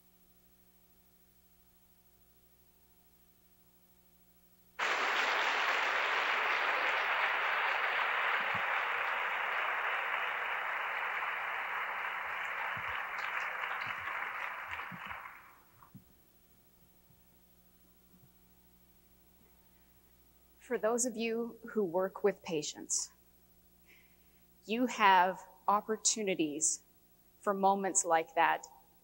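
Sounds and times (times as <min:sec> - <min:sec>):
audience applauding: 0:04.8 - 0:15.7.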